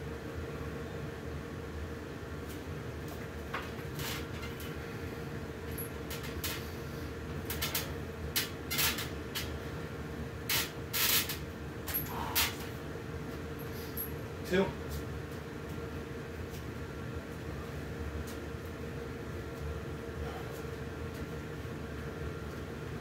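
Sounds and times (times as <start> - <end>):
low room hum: 0.0 - 23.0
man breathing hard: 12.0 - 12.7, 20.2 - 20.6.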